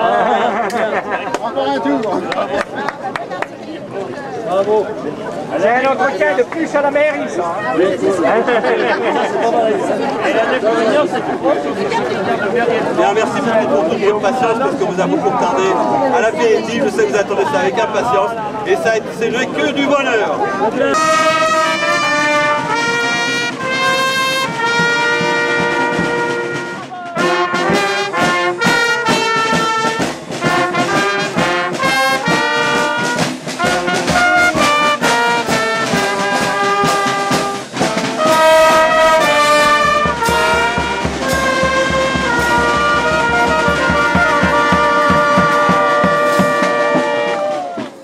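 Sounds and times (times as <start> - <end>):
brass band playing: 20.5 - 48.0.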